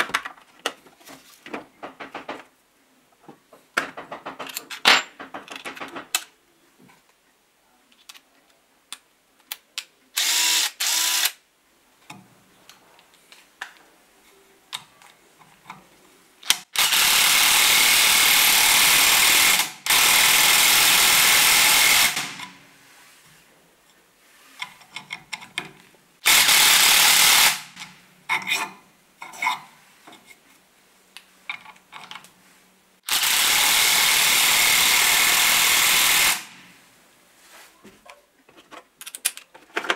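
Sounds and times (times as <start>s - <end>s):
tool handling clicks and knocks: 0.0s - 2.6s, 3.2s - 7.2s, 24.6s - 26.0s, 31.4s - 32.4s, 37.9s - 39.9s
cordless driver running: 16.8s - 22.4s, 26.3s - 27.7s, 33.1s - 36.5s.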